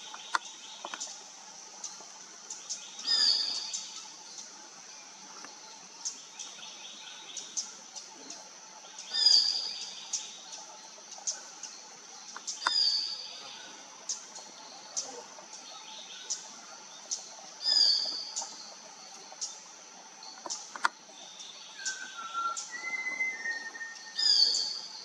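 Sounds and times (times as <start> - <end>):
thrush giving shrill calls: 21.8 - 24.9.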